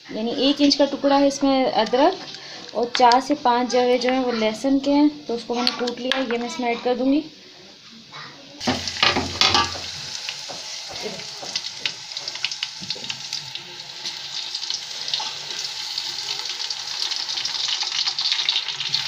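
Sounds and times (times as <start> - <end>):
onions sizzling in hot oil: 8.0 - 19.0.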